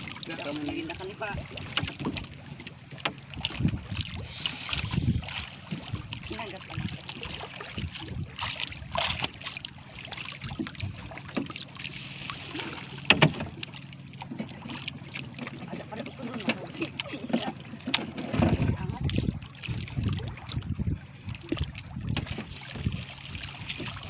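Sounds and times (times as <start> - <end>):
water lapping against boat: 0.0 - 24.0
wind on microphone: 3.3 - 9.4, 10.4 - 11.1, 18.2 - 24.0.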